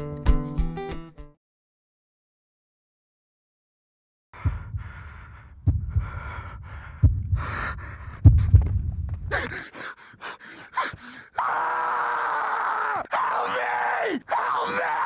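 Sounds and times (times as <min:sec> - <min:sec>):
low rumble: 0:04.4 - 0:09.5
man panting and gasping: 0:04.4 - 0:11.4.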